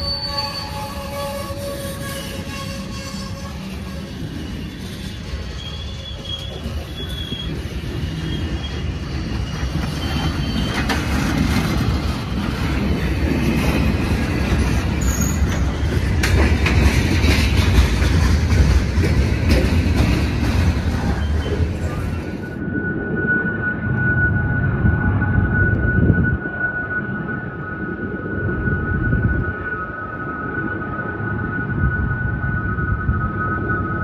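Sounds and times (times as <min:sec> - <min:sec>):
diesel train rumble: 0:00.0 - 0:34.0
wheels squealing on rail: 0:00.0 - 0:34.0
wheels clattering over rails: 0:04.9 - 0:22.5.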